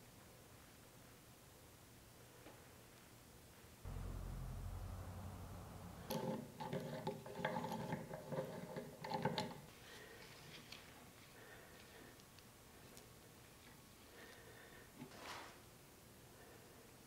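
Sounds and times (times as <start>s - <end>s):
low steady hum: 3.9s - 6.6s.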